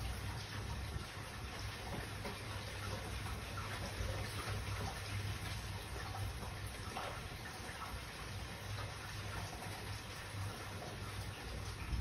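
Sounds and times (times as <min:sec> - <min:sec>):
low steady rumble: 0:10.8 - 0:12.0.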